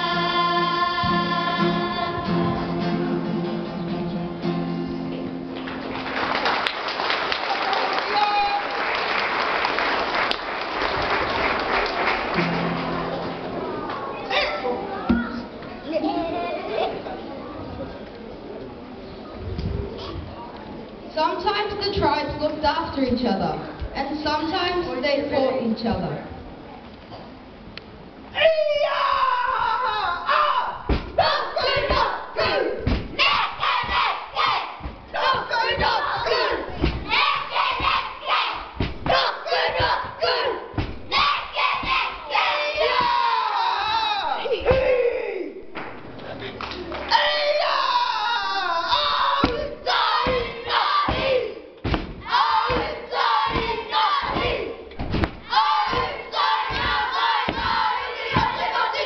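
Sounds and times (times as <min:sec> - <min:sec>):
shouted phrases: 0:28.3 - 0:45.6, 0:47.1 - 0:54.8, 0:55.4 - 0:59.0
children chanting in unison: 0:30.3 - 0:43.6, 0:47.3 - 0:54.8, 0:55.5 - 0:59.0
feet stamping: 0:32.8 - 0:40.2, 0:49.4 - 0:58.8.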